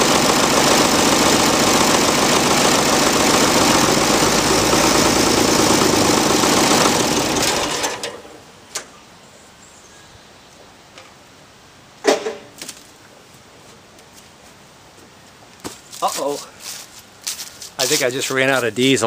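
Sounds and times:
diesel tractor engine: 0.0s - 8.8s.

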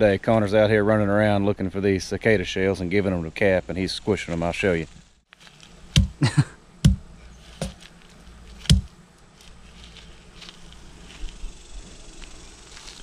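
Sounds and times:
hammer striking cicada shells: 5.9s - 6.2s, 6.8s - 7.8s, 8.6s - 8.9s.

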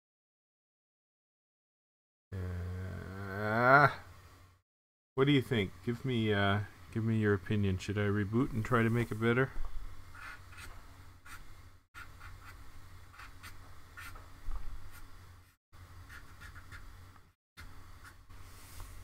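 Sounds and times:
pen scratching on paper: 10.2s - 11.4s, 12.0s - 14.2s, 16.1s - 16.8s.

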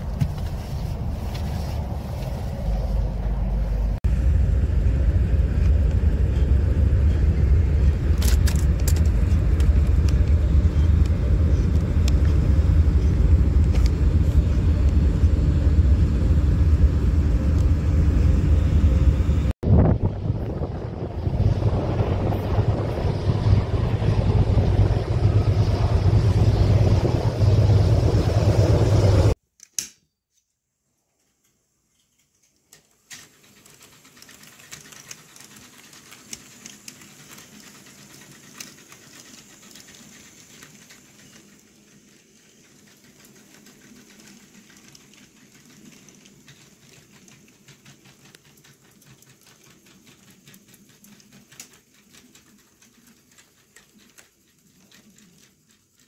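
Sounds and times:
wind buffeting microphone: 0.0s - 29.4s
wheels clicking over rail joints: 5.3s - 17.8s, 31.1s - 56.0s
model train motor hum: 32.7s - 56.0s.

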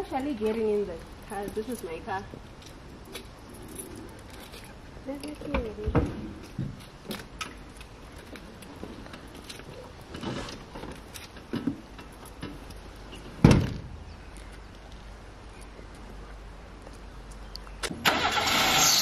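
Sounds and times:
quiet knocks and rustles: 0.2s - 17.9s.

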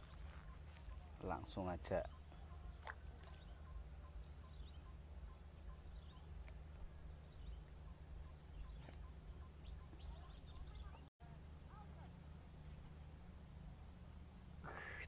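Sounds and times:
bird-like chirps: 0.0s - 11.1s, 14.6s - 15.0s
small repeating chirp: 2.0s - 11.0s.

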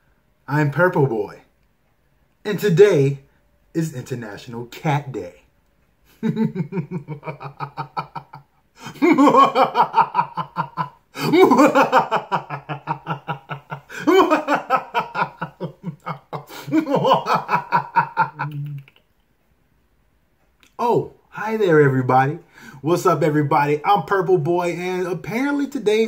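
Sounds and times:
man laughing hard: 6.1s - 18.5s.

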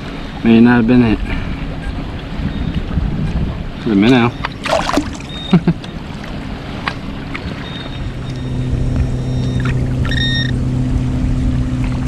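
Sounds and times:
river water sloshing: 4.4s - 8.5s
low steady hum: 4.5s - 6.2s
hands digging through muck: 4.6s - 5.3s.

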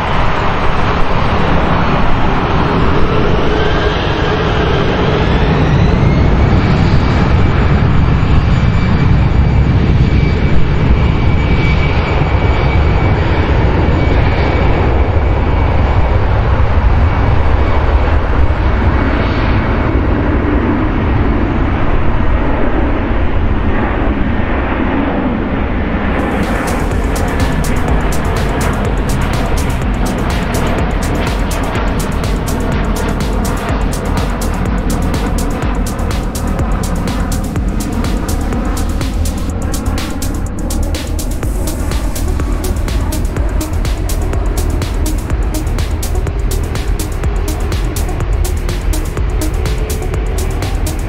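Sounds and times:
jet airliner taking off: 0.0s - 51.0s.

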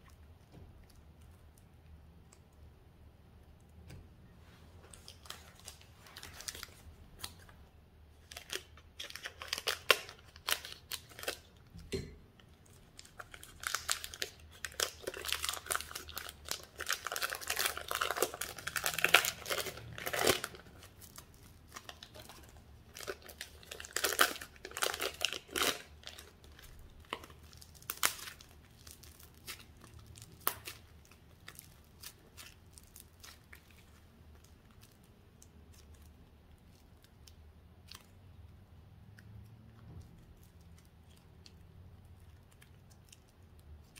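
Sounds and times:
plastic bags crinkling: 4.8s - 7.6s, 8.2s - 11.8s, 12.6s - 37.2s
slime crackling and popping: 4.9s - 43.9s.

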